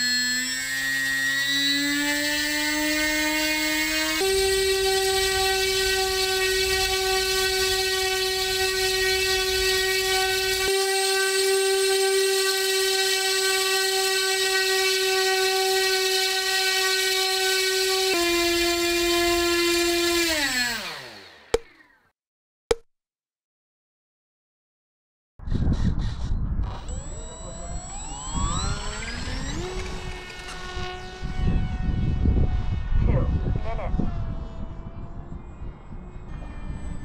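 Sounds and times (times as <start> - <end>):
motor spinning propeller whine: 0.0 - 21.9, 26.7 - 37.0
wind rumble on microphone: 25.4 - 37.0.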